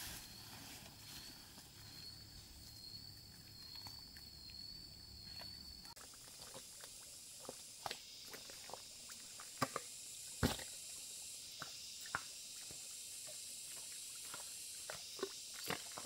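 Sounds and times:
steady high hiss: 0:00.0 - 0:02.6, 0:07.0 - 0:15.6
squelching in wet mud: 0:03.2 - 0:10.8.

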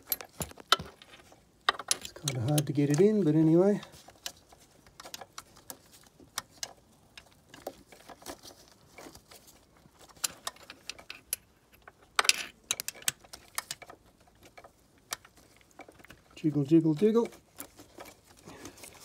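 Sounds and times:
metal pin clicking and scraping: 0:00.0 - 0:03.2, 0:10.0 - 0:16.4.

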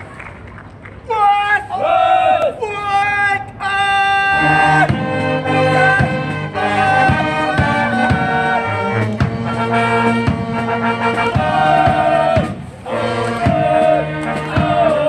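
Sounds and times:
brass band playing: 0:04.2 - 0:15.0
drum beating: 0:04.7 - 0:15.0.

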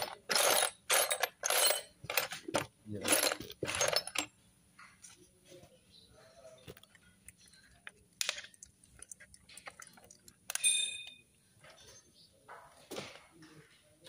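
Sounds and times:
metal parts clicking and knocking: 0:00.0 - 0:04.4, 0:06.7 - 0:11.2
sharp ringing metallic clink: 0:10.6 - 0:11.2.

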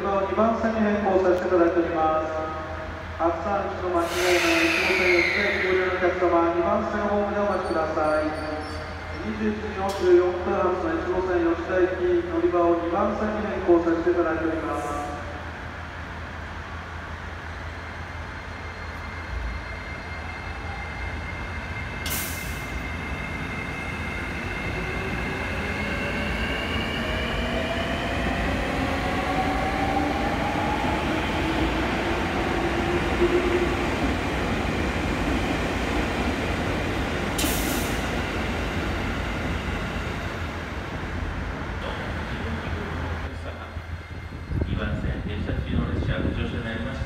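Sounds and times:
rumble of train cars: 0:00.0 - 0:47.0
short hisses: 0:04.0 - 0:05.2.

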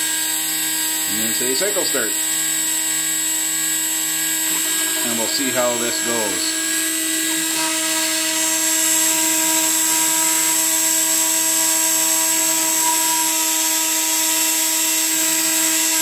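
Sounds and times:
router spindle whining: 0:00.0 - 0:16.0.

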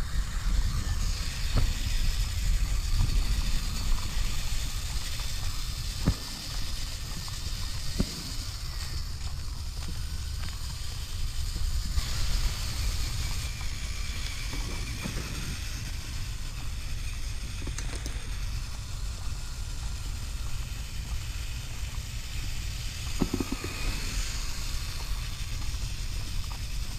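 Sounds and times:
electric motor whine: 0:00.0 - 0:26.9
wind rumble on microphone: 0:00.0 - 0:26.9
tyres crunching over gravel: 0:02.4 - 0:16.6.

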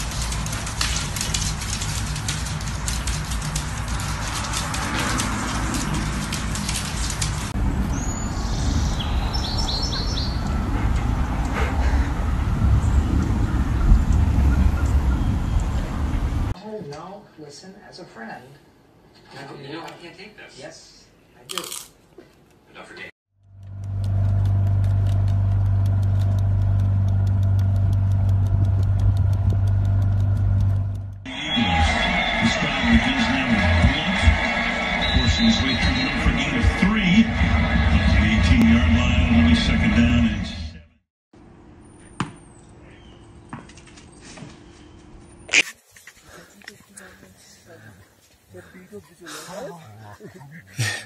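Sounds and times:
dog's claws clicking on wooden floor: 0:00.0 - 0:07.5
low outdoor rumble: 0:00.0 - 0:16.6, 0:23.4 - 0:40.8
motorboat engine droning: 0:23.4 - 0:31.2
fast even ticking: 0:23.4 - 0:31.3.

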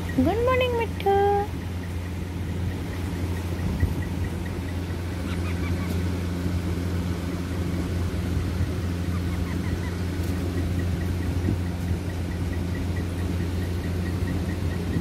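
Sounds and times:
parakeet chick chirping: 0:00.0 - 0:06.0, 0:09.1 - 0:15.0
soft evenly spaced peeps: 0:00.0 - 0:06.4, 0:08.4 - 0:15.0
steady low hum: 0:00.0 - 0:15.0.

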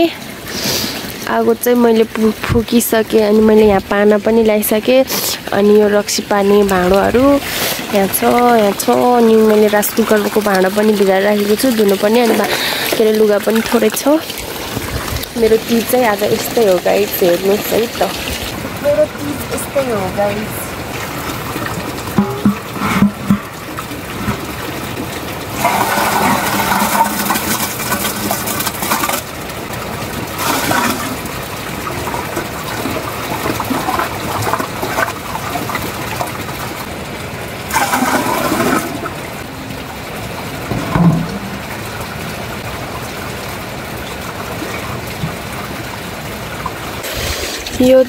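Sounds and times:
running water: 0:00.0 - 0:48.0
water splashing: 0:00.0 - 0:48.0
metal pots clanking: 0:21.8 - 0:24.6, 0:25.6 - 0:29.1, 0:40.6 - 0:42.0.

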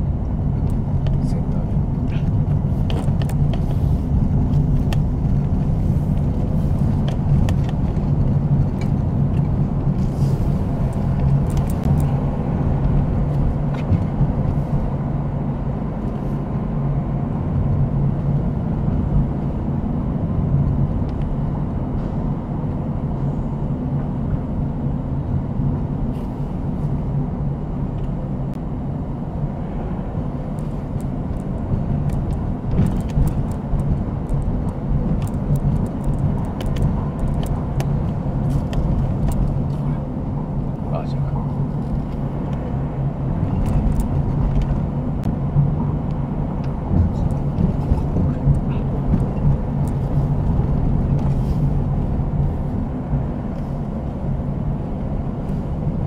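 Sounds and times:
car engine and tyres drone: 0:00.0 - 0:56.0.

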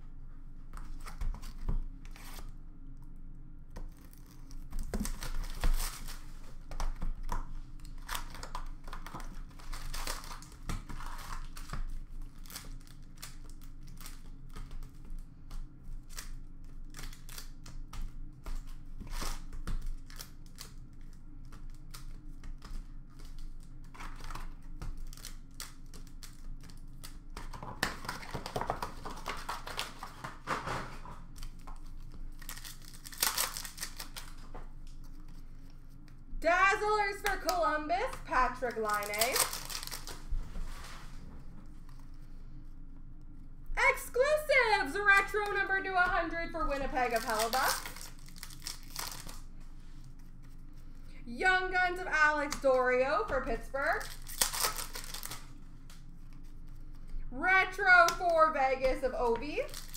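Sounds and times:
foil packs crinkling: 0:03.9 - 0:15.2, 0:18.3 - 0:35.6, 0:36.7 - 0:40.3, 0:43.8 - 0:50.6, 0:53.8 - 0:57.2, 0:58.0 - 0:59.9.

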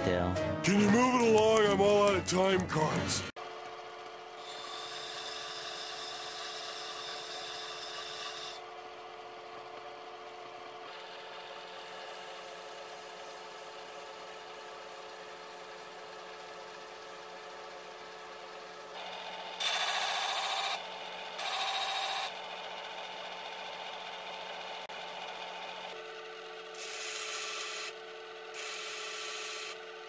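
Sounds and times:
electric sharpener humming: 0:03.4 - 0:30.0
steel grinding on abrasive disc: 0:04.4 - 0:08.6, 0:21.4 - 0:22.4, 0:26.7 - 0:29.8.

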